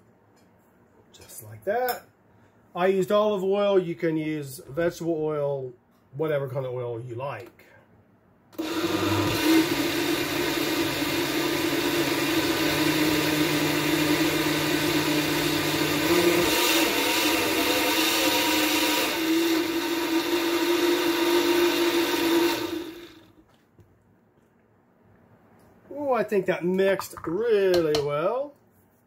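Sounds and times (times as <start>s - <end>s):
blender motor running: 8.6s - 23.4s.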